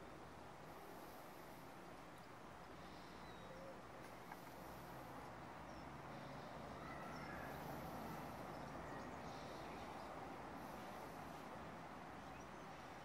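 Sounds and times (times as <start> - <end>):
outdoor background hiss: 0.0 - 13.0
distant bird chirps: 2.1 - 11.4.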